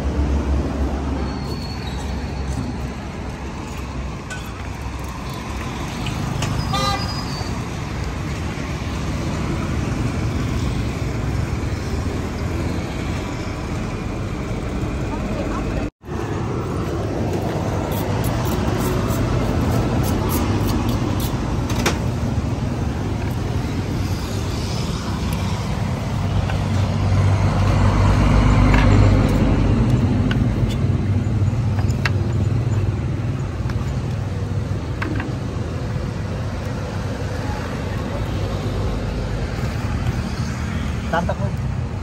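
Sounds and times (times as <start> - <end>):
road traffic rumble: 0.0 - 42.0
vehicle passing close by: 23.7 - 31.4.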